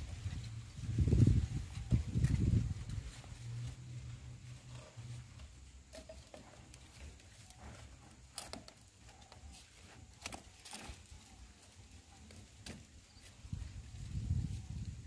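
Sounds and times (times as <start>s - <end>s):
plastic pipes clicking and scraping: 4.6s - 13.2s.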